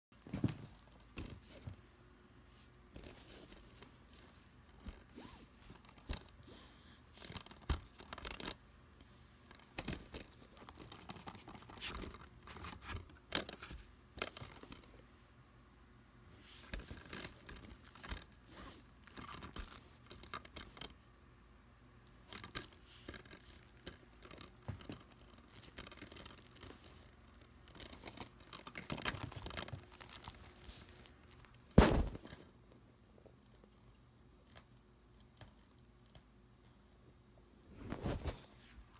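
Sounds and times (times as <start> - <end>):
plastic case rustling and clicking: 9.5 - 14.9, 22.3 - 32.4.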